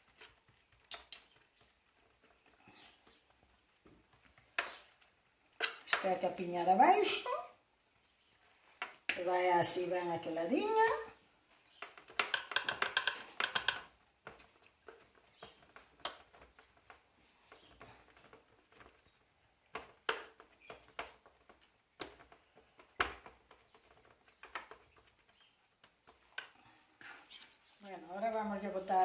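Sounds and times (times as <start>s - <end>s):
forks clicking and scraping on metal: 0.0s - 8.0s.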